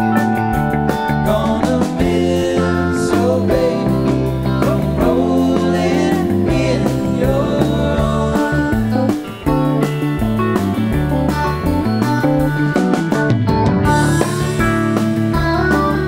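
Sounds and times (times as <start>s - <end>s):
live rock band playing: 0.0s - 16.0s
lead vocal singing: 1.1s - 9.4s.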